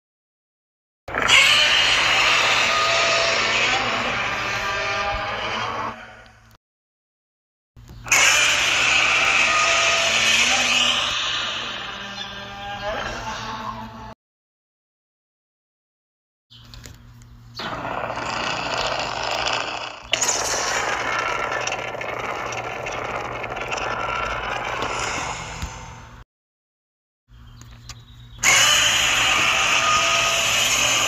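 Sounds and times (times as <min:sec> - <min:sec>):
monster roar: 0:01.1 - 0:06.2, 0:08.1 - 0:13.8, 0:17.6 - 0:26.2, 0:28.4 - 0:31.0.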